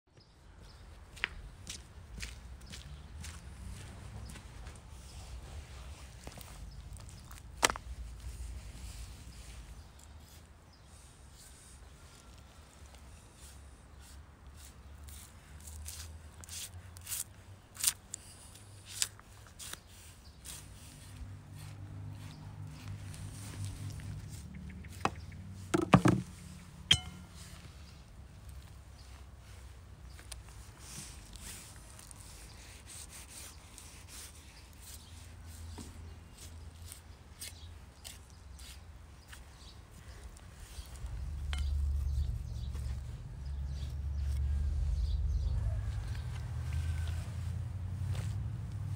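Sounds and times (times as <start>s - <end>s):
low rumble: 40.8s - 47.9s.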